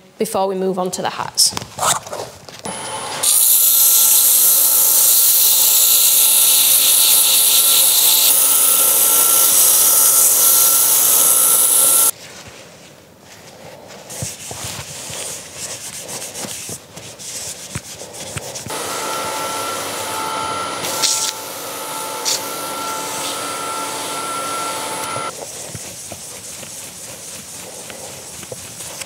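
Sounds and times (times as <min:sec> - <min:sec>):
lathe running with high whine: 0:02.7 - 0:12.1, 0:18.7 - 0:25.3
cloth rubbing on wood: 0:10.6 - 0:29.0.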